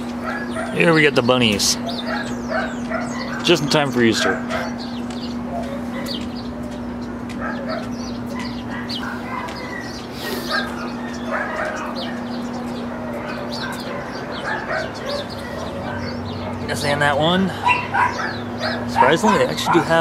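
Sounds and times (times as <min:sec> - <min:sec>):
dogs barking and yipping: 0:00.0 - 0:20.0.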